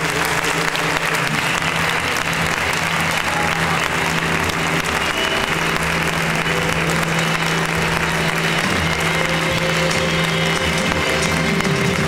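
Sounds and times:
audience applauding: 0:00.0 - 0:12.0
music playing: 0:00.0 - 0:12.0.

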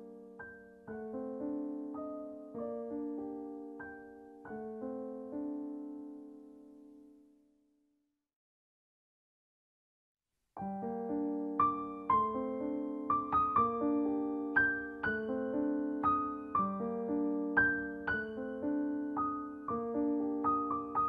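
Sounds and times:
gentle piano music: 0:00.0 - 0:07.5, 0:10.6 - 0:21.0.

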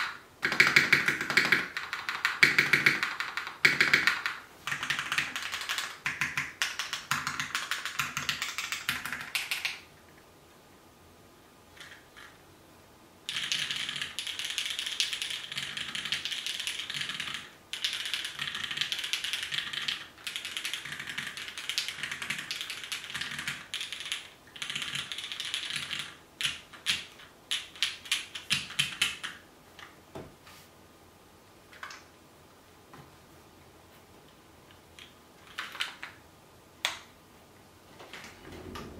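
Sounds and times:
typing on mechanical keyboards: 0:00.0 - 0:09.9, 0:13.3 - 0:29.4, 0:35.0 - 0:36.2.

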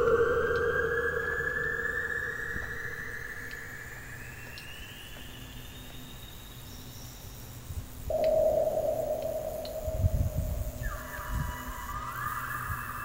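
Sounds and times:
synthesizer tone gliding upward: 0:00.0 - 0:05.0
faint low noise: 0:00.0 - 0:13.0.

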